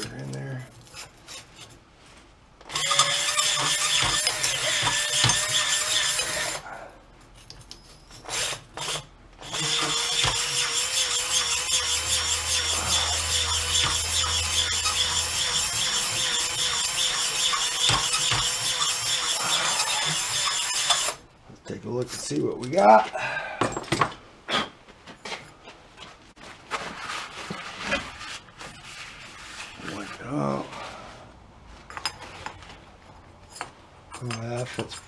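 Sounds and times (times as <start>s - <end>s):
hone stones grinding metal: 2.7s - 6.6s, 8.1s - 21.2s.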